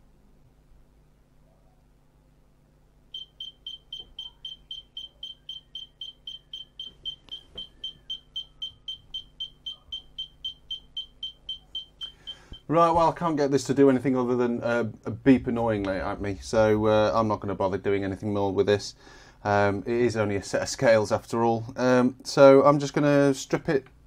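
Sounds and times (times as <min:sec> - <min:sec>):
scale beeper high-pitched beeps: 0:03.2 - 0:12.7.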